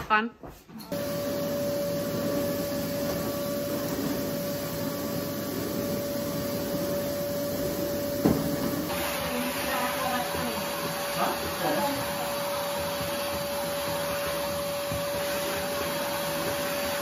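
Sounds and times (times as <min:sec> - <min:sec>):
vacuum cleaner whining: 0:00.8 - 0:17.0
knock: 0:08.2 - 0:08.8.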